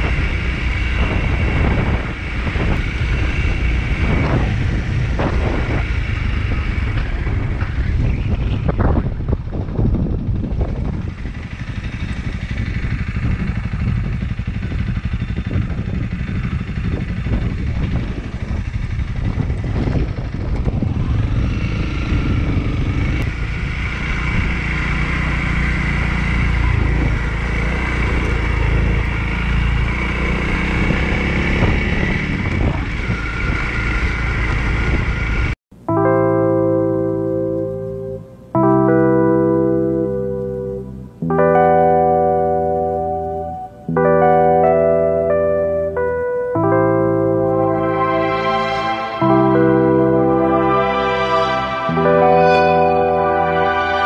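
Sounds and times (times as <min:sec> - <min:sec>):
motorcycle engine running: 0:00.0 - 0:35.6, 0:36.5 - 0:54.0
piano music: 0:35.8 - 0:54.0.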